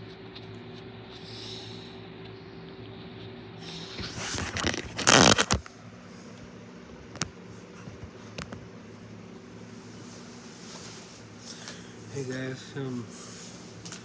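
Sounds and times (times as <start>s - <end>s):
steady low hum: 0.0s - 14.0s
microphone rubbing against shirt: 3.9s - 5.6s.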